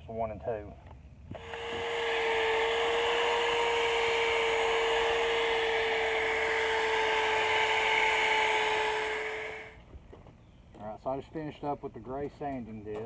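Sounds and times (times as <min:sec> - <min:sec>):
electric drill motor whine: 0:01.3 - 0:09.8.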